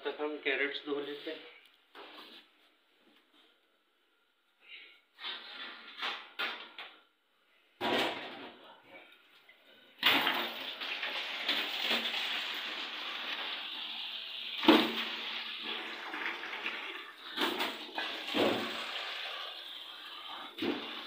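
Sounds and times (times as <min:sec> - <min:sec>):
tap water running into steel bowl: 0:10.1 - 0:21.0.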